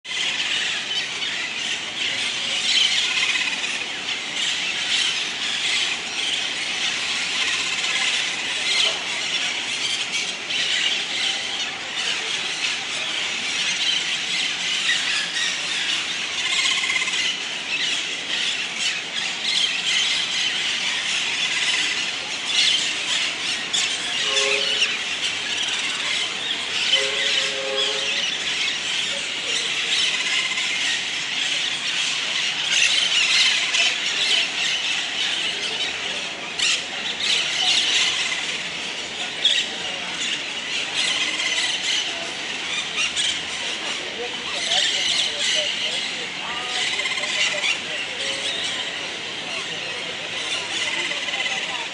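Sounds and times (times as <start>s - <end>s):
parakeets chattering: 0.1s - 51.9s.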